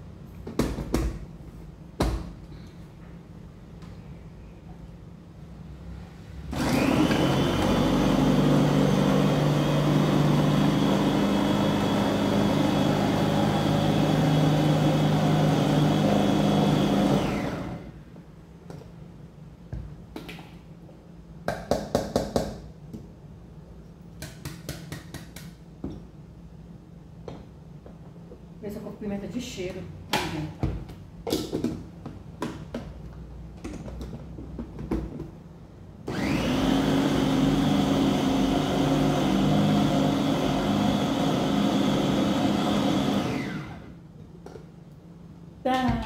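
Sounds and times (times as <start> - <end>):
electric food chopper motor whirring: 6.5 - 17.9, 36.1 - 44.0.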